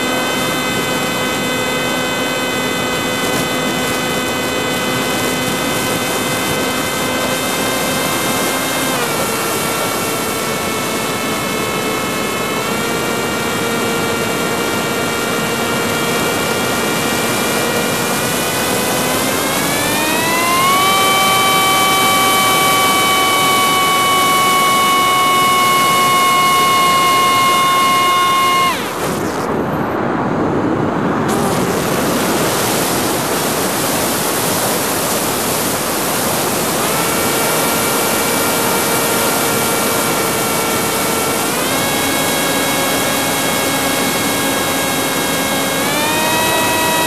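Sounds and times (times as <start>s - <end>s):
drone motors whining: 0.0s - 47.0s
rushing air: 27.3s - 37.3s.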